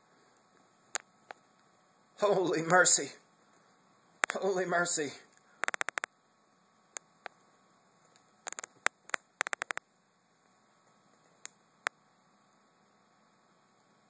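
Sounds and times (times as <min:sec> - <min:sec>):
faint steady hiss: 0:00.0 - 0:14.0
sharp clicks and rattles: 0:04.2 - 0:04.4, 0:05.6 - 0:06.1, 0:08.1 - 0:09.8.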